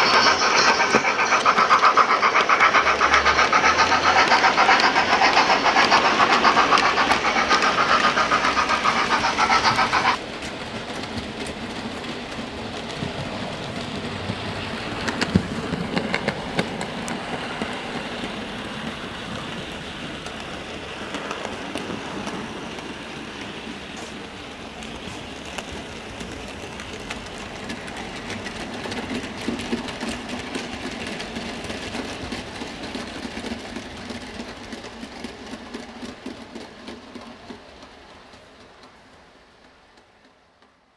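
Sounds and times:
model train wheels and motors rumbling: 0:00.0 - 0:40.9
wagons clicking over rail joints: 0:00.0 - 0:40.9.

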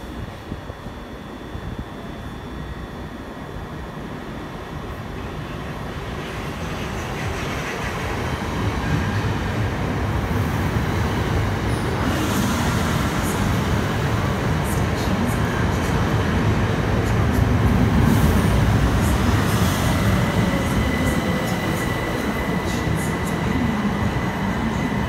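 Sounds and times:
train wheels rumbling on rail: 0:05.2 - 0:25.0.

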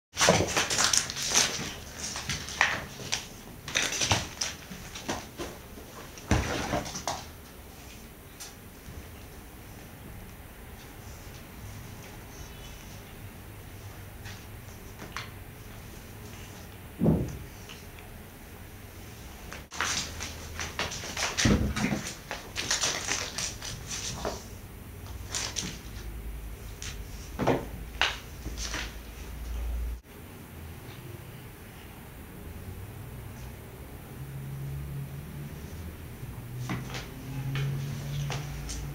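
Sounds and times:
cat scuffling and clicking: 0:00.2 - 0:10.0, 0:13.7 - 0:18.1, 0:19.4 - 0:29.6, 0:36.5 - 0:38.9
heavy thump: 0:17.0 - 0:17.5.

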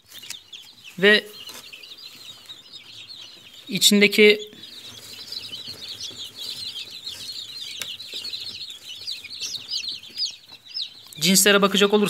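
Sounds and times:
chicks peeping: 0:00.0 - 0:12.0.

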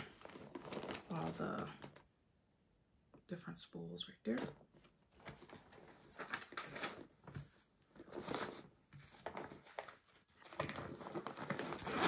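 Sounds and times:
paper rustling: 0:00.0 - 0:01.3, 0:05.1 - 0:12.0
fabric bag handled: 0:00.0 - 0:01.5.

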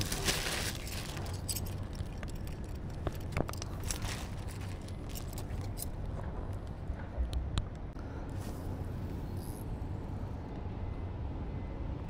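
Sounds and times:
plastic bag rustling: 0:00.0 - 0:05.8
low background hum: 0:00.0 - 0:12.0.

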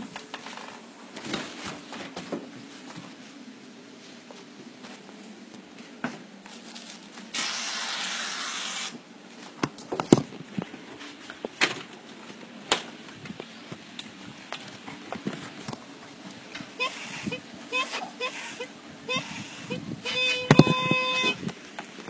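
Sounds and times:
hiss: 0:07.3 - 0:09.0, 0:16.8 - 0:19.7.

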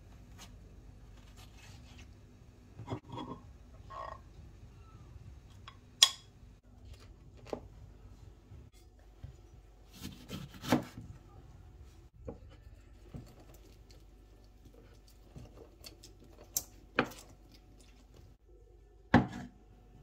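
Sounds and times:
knife cutting lemon on board: 0:10.0 - 0:11.0.

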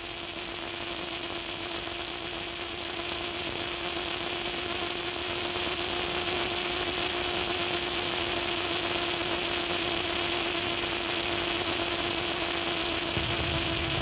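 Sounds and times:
constant low hum: 0:13.1 - 0:14.0.

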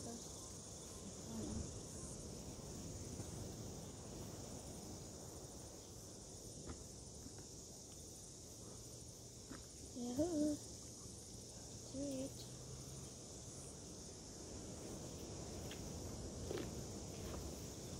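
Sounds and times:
insects chirring: 0:00.0 - 0:17.9.

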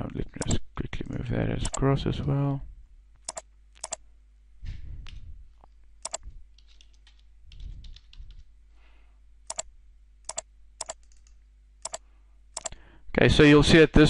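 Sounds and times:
computer mouse clicks: 0:00.4 - 0:00.6, 0:01.6 - 0:01.8, 0:03.2 - 0:04.0, 0:06.0 - 0:08.5, 0:09.5 - 0:09.7, 0:10.3 - 0:12.0, 0:12.6 - 0:12.8
keyboard typing: 0:01.6 - 0:01.8, 0:03.2 - 0:04.0, 0:06.0 - 0:08.5, 0:09.5 - 0:09.7, 0:10.3 - 0:12.0, 0:12.6 - 0:12.8.

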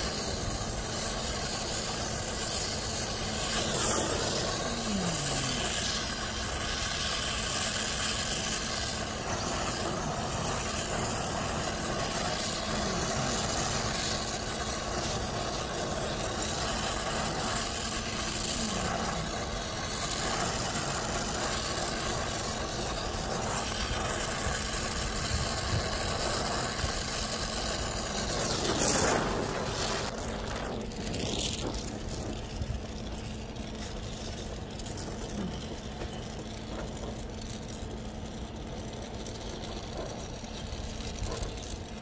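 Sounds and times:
machine humming: 0:00.0 - 0:42.0.

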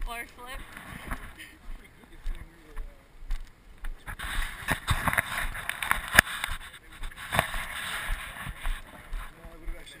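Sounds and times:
rubbing on camera microphone: 0:04.0 - 0:09.8.

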